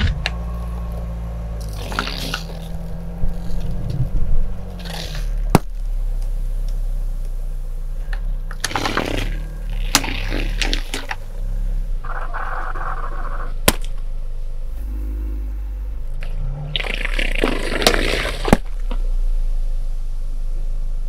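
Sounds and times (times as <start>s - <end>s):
plastic bottles crunching under tyre: 0.0s - 5.8s, 8.5s - 11.2s, 16.7s - 18.9s
car engine running low: 0.0s - 21.0s
cola gushing and foaming: 16.8s - 18.5s.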